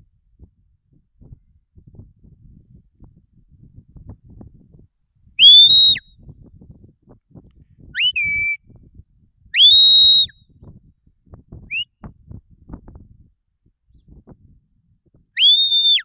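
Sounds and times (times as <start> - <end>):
sharp rising whistles: 5.4 - 6.0, 9.6 - 10.3, 15.4 - 16.0
short rising whistle chirp: 5.4 - 6.0, 8.0 - 8.6, 15.4 - 16.0.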